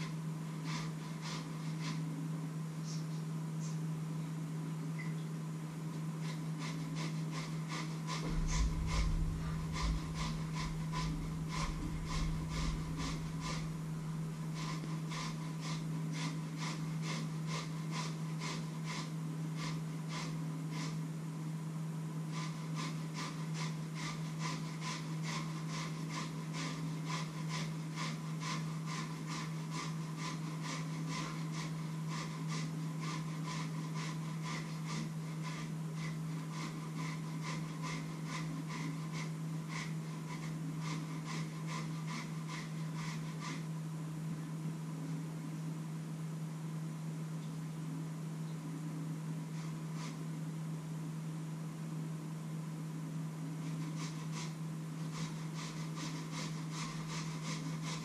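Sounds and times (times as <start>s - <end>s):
rhythmic tapping of food preparation: 0.0s - 2.1s, 6.0s - 21.0s, 22.2s - 43.8s, 53.5s - 58.0s
constant low hum: 0.0s - 58.0s
low rumble: 8.3s - 14.5s.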